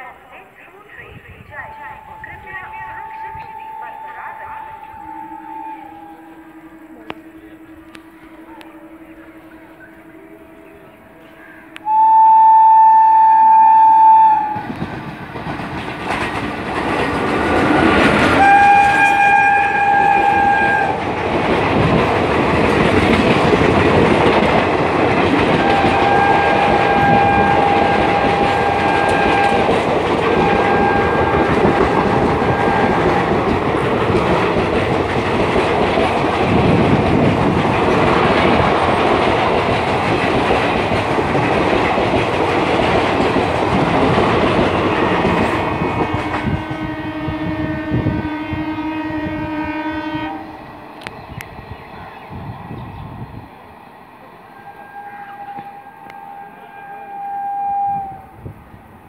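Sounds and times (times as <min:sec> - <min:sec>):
train horn blasts: 0:00.0 - 0:14.9, 0:17.4 - 0:21.2, 0:25.1 - 0:35.9, 0:44.1 - 0:50.7, 0:54.5 - 0:58.5
train coaches rushing past: 0:00.0 - 0:59.0
wheels clacking on rail joints: 0:14.4 - 0:46.8.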